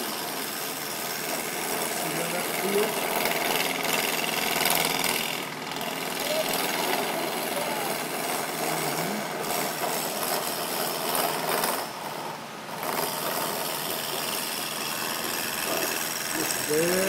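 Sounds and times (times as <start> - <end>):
wood lathe gouge scraping: 0.0 - 17.0.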